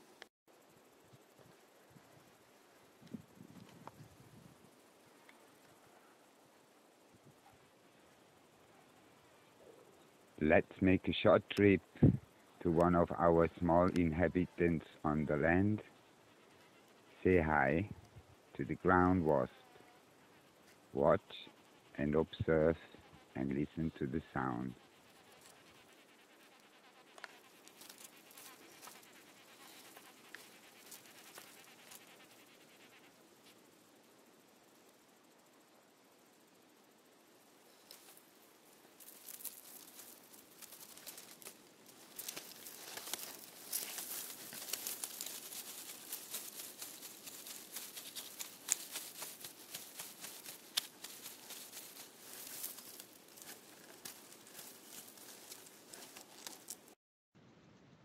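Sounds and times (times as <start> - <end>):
wasp buzzing: 15.9 - 17.2, 22.9 - 23.5, 24.6 - 33.7, 37.6 - 57.0
dry crackling in dry grass: 24.7 - 33.7, 37.6 - 57.0.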